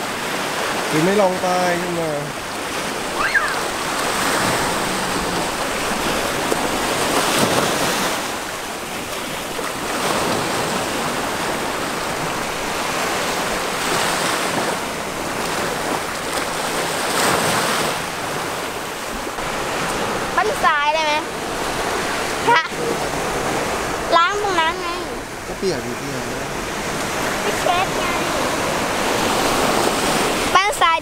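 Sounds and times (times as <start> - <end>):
sea waves breaking on beach: 0.0 - 31.0.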